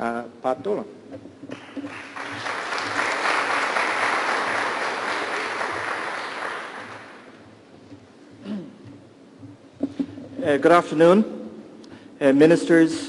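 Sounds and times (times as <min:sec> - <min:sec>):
audience applauding: 0:01.6 - 0:07.4.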